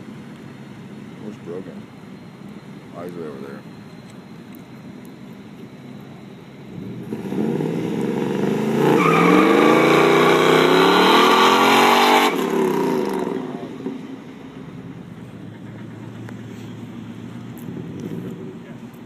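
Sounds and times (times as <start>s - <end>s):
car engine accelerating hard: 6.7s - 14.1s.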